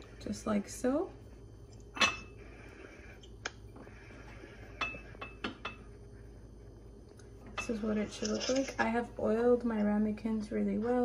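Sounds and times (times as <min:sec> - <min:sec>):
ceramic ramekins clinking: 0:02.0 - 0:02.3.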